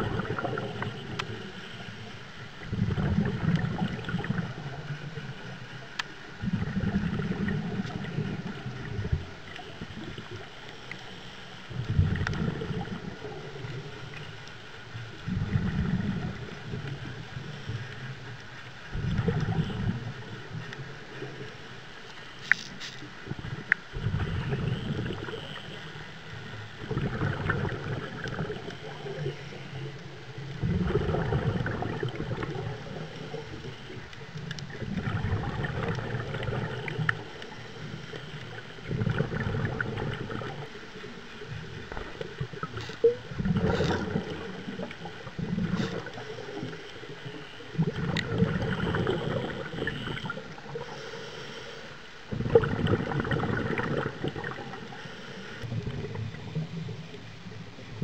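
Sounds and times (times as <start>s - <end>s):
regulator bubbles gurgling: 0.0s - 58.0s
small clicks: 22.1s - 23.1s.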